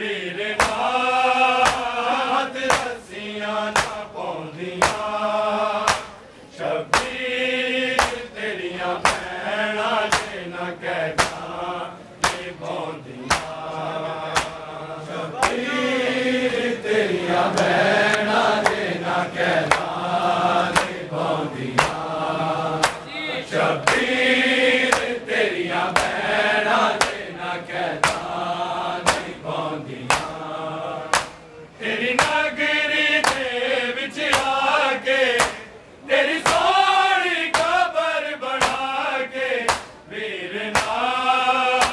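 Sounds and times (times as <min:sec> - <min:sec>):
men chanting together: 0:00.0 - 0:41.9
hands slapping chests: 0:00.6 - 0:00.9, 0:01.6 - 0:02.0, 0:02.6 - 0:03.0, 0:03.7 - 0:04.1, 0:04.8 - 0:05.2, 0:05.8 - 0:06.2, 0:06.9 - 0:07.2, 0:08.0 - 0:08.3, 0:09.0 - 0:09.3, 0:10.1 - 0:10.4, 0:11.1 - 0:11.5, 0:12.2 - 0:14.7, 0:15.4 - 0:15.7, 0:17.5 - 0:19.0, 0:19.6 - 0:20.0, 0:20.7 - 0:21.0, 0:21.8 - 0:22.1, 0:22.8 - 0:23.0, 0:23.8 - 0:24.1, 0:24.9 - 0:25.2, 0:25.9 - 0:26.2, 0:26.9 - 0:27.3, 0:28.0 - 0:28.4, 0:29.0 - 0:29.4, 0:30.0 - 0:30.4, 0:31.1 - 0:31.4, 0:32.2 - 0:32.4, 0:33.2 - 0:33.5, 0:34.3 - 0:34.6, 0:35.3 - 0:35.6, 0:36.4 - 0:36.7, 0:37.5 - 0:37.8, 0:38.6 - 0:38.9, 0:39.7 - 0:40.0, 0:40.7 - 0:41.1.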